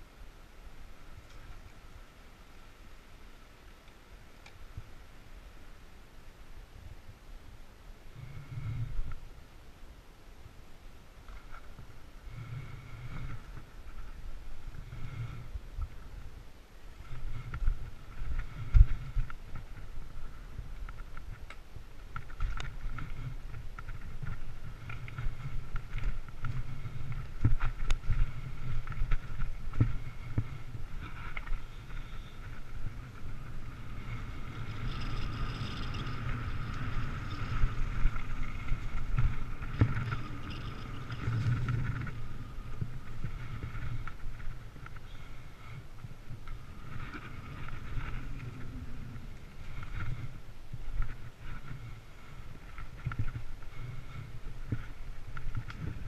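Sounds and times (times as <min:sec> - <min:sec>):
wind and tyres rumbling: 0:00.0 - 0:56.0
bike knocking and rattling: 0:17.0 - 0:56.0.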